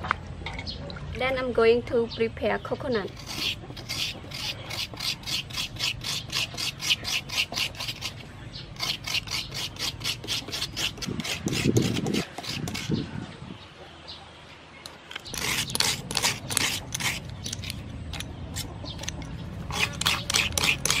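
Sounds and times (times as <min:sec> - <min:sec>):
coconut scraping: 0:03.0 - 0:13.1, 0:14.8 - 0:21.0.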